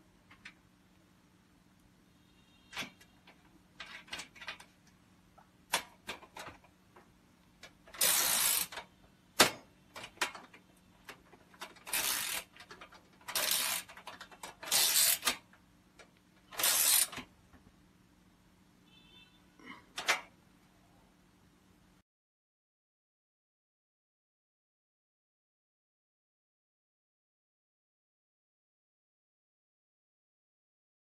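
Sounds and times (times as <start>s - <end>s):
ratchet wrench clicking: 8.0s - 8.8s, 11.8s - 12.5s, 13.3s - 15.4s, 16.6s - 17.2s.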